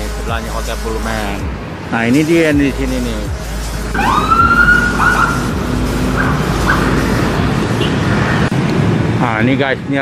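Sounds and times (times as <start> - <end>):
city traffic rumble: 0.0 - 10.0
vehicle siren: 4.0 - 5.6.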